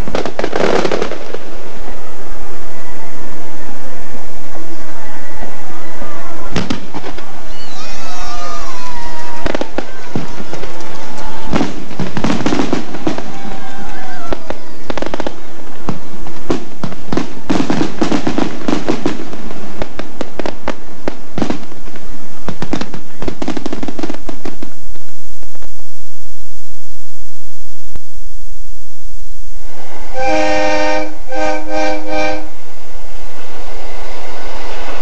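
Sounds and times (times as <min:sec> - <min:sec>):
whistling fireworks: 0:00.0 - 0:25.9, 0:29.6 - 0:35.0
fireworks bangs and crackles: 0:00.0 - 0:27.4.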